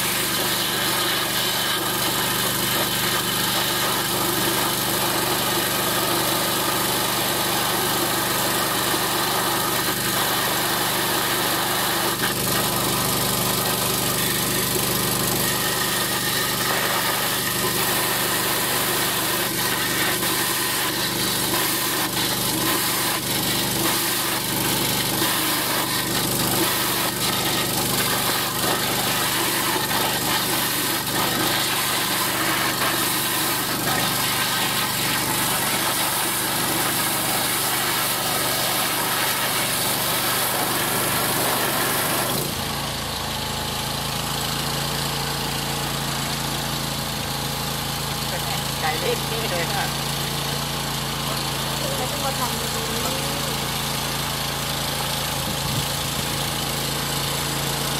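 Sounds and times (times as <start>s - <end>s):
engine and pump drone: 0.0s - 57.9s
water jetting hiss: 16.6s - 42.3s.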